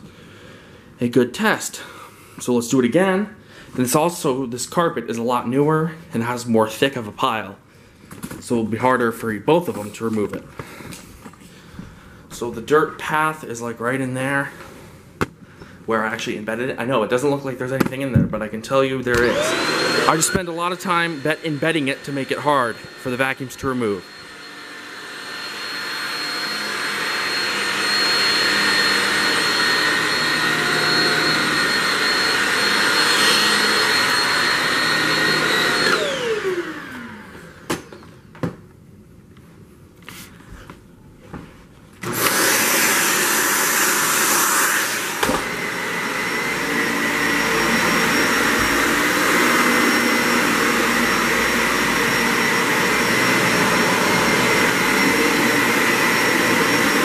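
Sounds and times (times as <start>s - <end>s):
upright vacuum running: 19.0s - 38.1s, 42.0s - 57.0s
stick vacuum whining: 19.0s - 38.2s, 42.0s - 57.0s.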